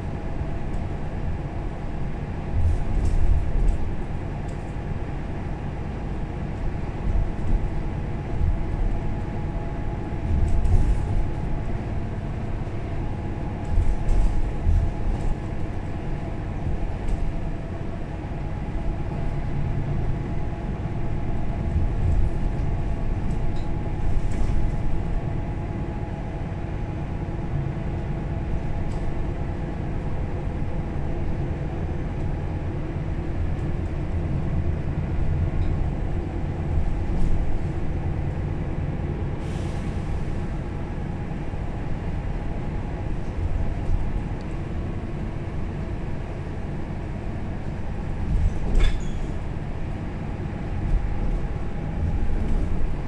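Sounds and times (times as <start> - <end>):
bus drivetrain hum: 0.0 - 53.0
road rumble: 0.0 - 53.0
light rattles and clicks: 2.6 - 4.8, 10.2 - 11.7, 13.6 - 15.7.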